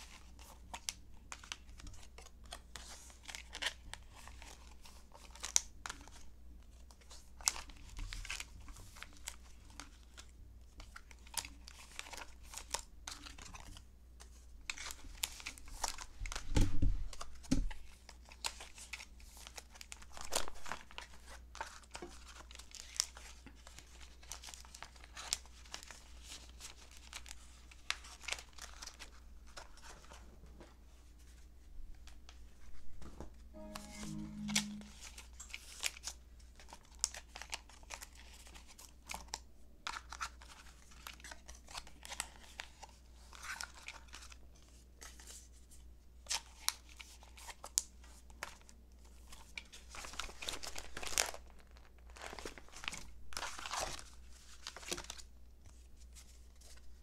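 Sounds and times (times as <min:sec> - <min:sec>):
plastic sleeves crinkling: 0:49.6 - 0:57.0.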